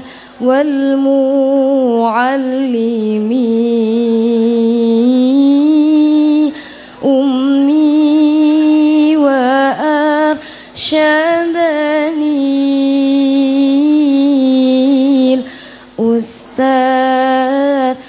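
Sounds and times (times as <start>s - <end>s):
short breaths: 0.0s - 0.4s, 6.6s - 7.0s, 10.4s - 10.8s, 15.5s - 16.0s.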